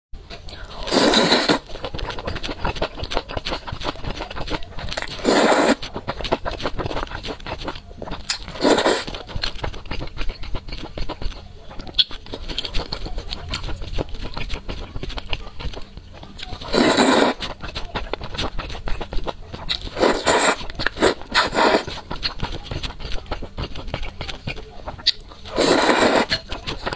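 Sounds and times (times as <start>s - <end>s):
wet chewing: 0.2s - 26.9s
loud noodle slurps: 0.8s - 3.9s, 4.9s - 5.9s, 8.3s - 9.2s, 16.7s - 17.6s, 19.8s - 22.0s, 25.4s - 26.9s.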